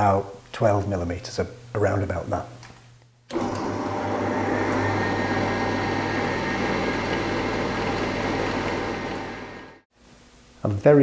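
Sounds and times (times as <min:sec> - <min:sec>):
pillar drill drilling metal: 0:03.3 - 0:09.8.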